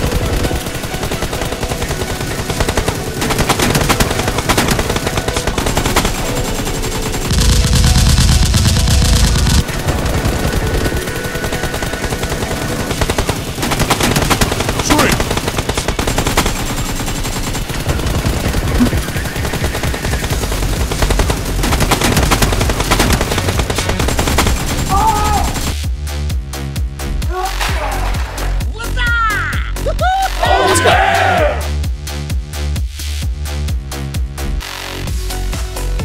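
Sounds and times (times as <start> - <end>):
automatic gunfire sound effects: 0.0 - 25.8.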